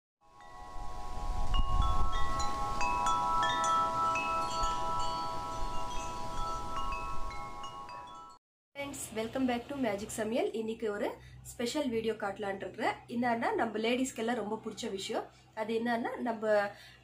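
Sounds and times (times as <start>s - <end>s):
chimes tinkling: 0.3s - 8.4s.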